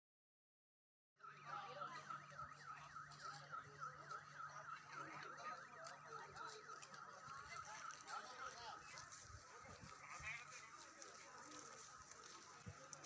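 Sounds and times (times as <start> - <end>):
distant voices: 1.3 - 13.0.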